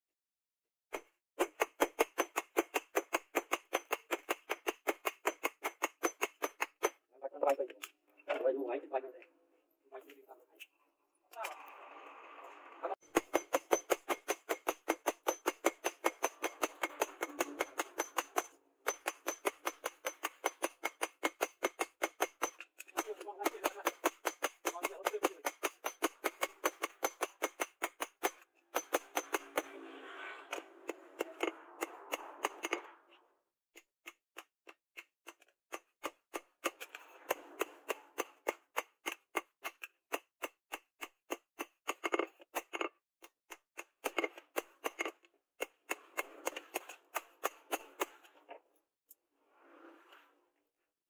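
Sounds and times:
hammer beating steel on anvil: 13.0 - 29.7.

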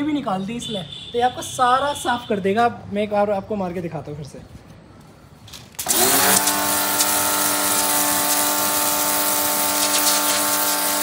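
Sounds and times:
pressure washer motor humming: 5.8 - 11.0
water jet hissing on tiles: 5.8 - 11.0.

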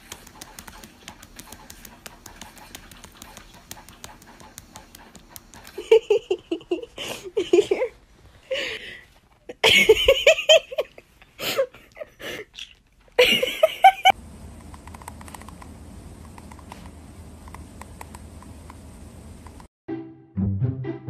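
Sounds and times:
person laughing: 5.6 - 8.8, 9.5 - 12.6, 13.2 - 14.2
low steady hum: 13.0 - 19.7.

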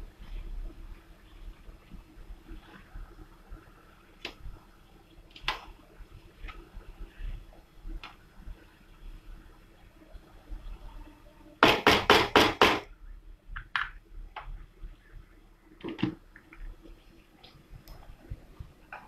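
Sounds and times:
wooden spatula knocking on pan: 11.6 - 12.9.

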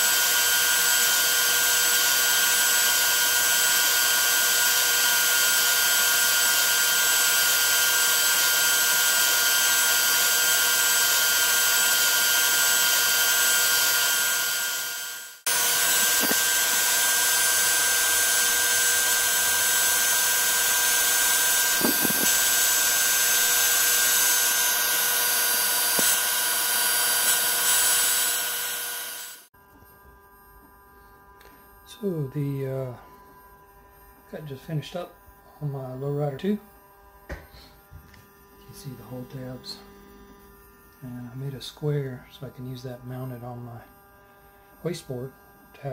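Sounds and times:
router spindle whining: 0.0 - 29.5.

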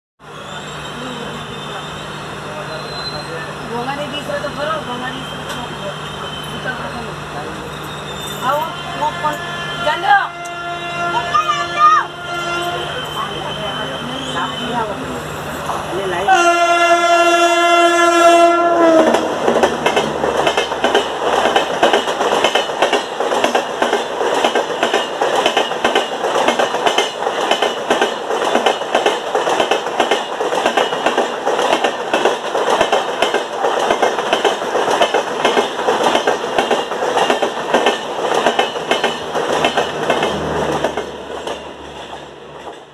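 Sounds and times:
locomotive horn blast: 8.6 - 15.0, 16.3 - 19.4
train wheels clattering over rail joints: 19.1 - 42.9.

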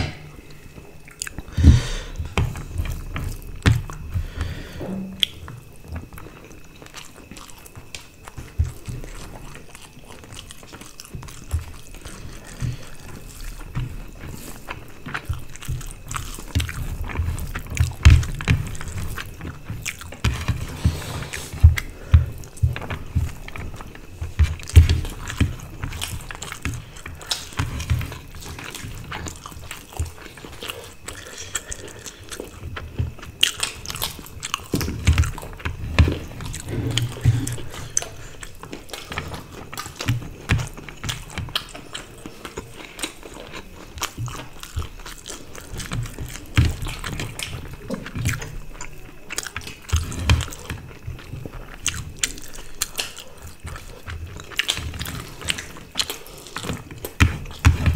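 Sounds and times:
people chewing food: 0.0 - 57.9.

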